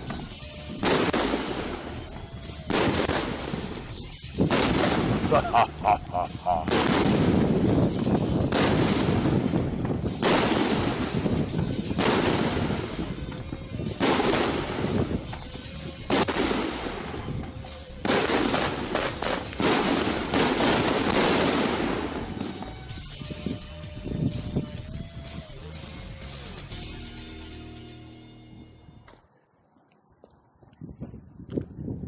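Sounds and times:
firework reports with echo: 0.0s - 23.6s.

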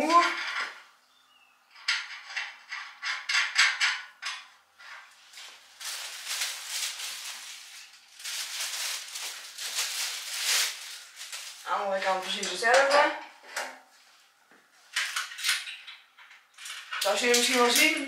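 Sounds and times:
plastic bag crinkling: 5.0s - 12.7s
small metal parts clicking and rattling: 15.0s - 18.0s.

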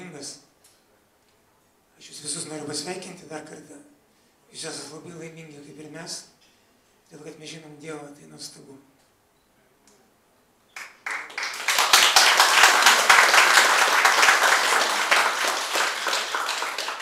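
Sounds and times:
audience applauding: 10.8s - 17.0s.

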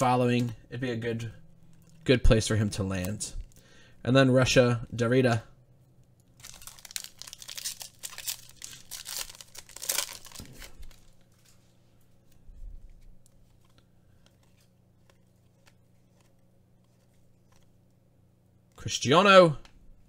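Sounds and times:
foil wrapper tearing and crinkling: 6.4s - 11.1s
cards sliding through hands: 10.4s - 18.0s.

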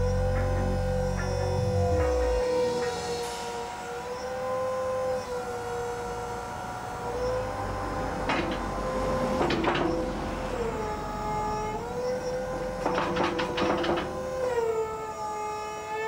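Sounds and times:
electric motor and hydraulic pump whining: 0.0s - 16.0s.

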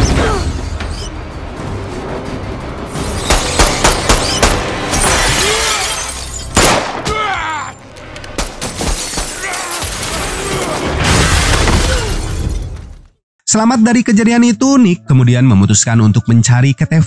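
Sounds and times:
film score music: 0.0s - 8.9s
gunshots and impacts: 3.0s - 5.2s, 6.5s - 7.2s
glass shattering: 4.9s - 6.8s, 8.4s - 13.0s
man yelling: 7.0s - 7.8s.

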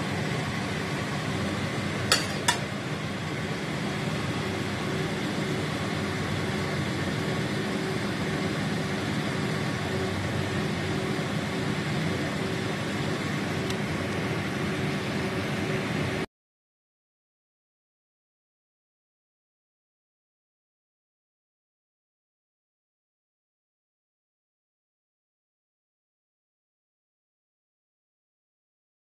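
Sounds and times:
kitchen fan whirring: 0.0s - 16.3s.

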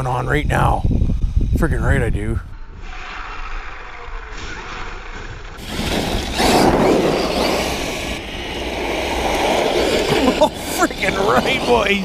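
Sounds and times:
rc truck tyres rushing on gravel: 2.8s - 12.0s.

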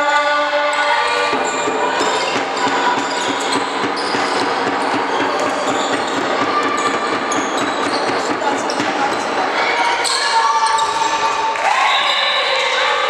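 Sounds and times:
shoes squeaking on floor: 0.0s - 11.5s
echoing din of sports hall: 0.0s - 13.0s
ball bouncing: 1.1s - 11.2s.

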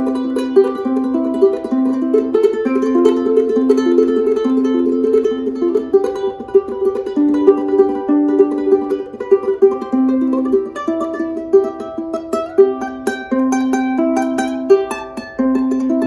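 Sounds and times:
ukulele melody: 0.0s - 16.0s.

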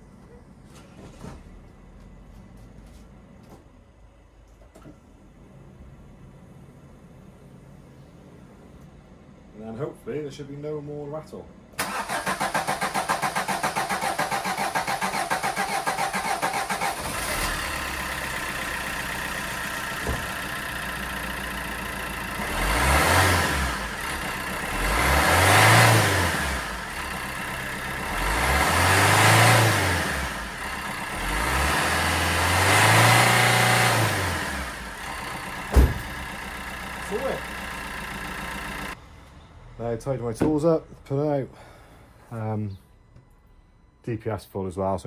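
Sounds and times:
diesel engine cranking: 11.8s - 39.0s
diesel engine idling and revving: 11.9s - 40.0s.

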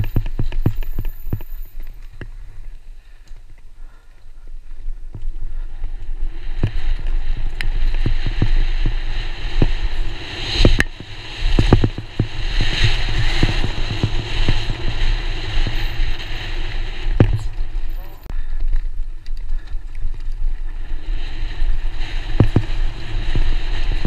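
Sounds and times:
bike knocking and rattling: 0.0s - 24.0s
wind buffeting microphone: 0.0s - 24.0s.

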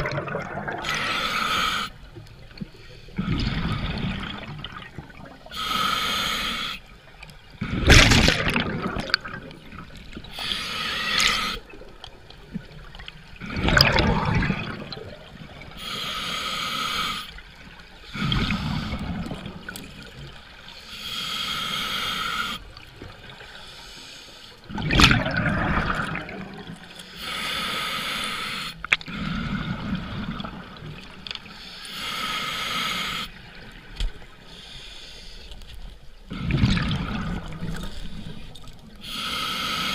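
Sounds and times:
exhaled bubbles rushing: 0.0s - 1.1s, 3.2s - 5.5s, 7.6s - 10.2s, 12.9s - 15.7s, 24.7s - 26.8s, 36.3s - 37.9s
regulator hissing inhale: 0.8s - 2.1s, 5.5s - 6.9s, 10.3s - 11.7s, 15.7s - 17.4s, 20.7s - 22.7s, 23.5s - 24.7s, 26.9s - 29.7s, 31.4s - 33.4s, 34.4s - 35.7s, 37.8s - 39.9s.

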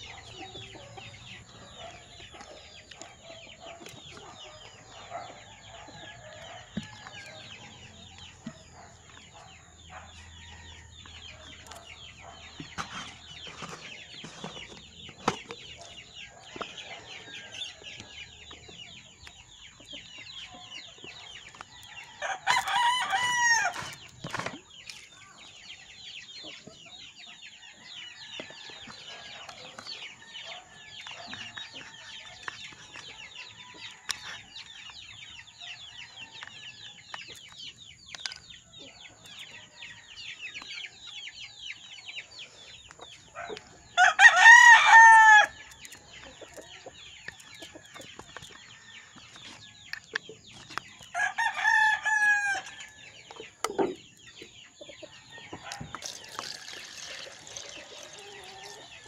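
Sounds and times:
chicks peeping: 0.0s - 59.0s
rooster crowing: 22.2s - 23.9s, 44.0s - 45.6s, 51.2s - 52.8s.

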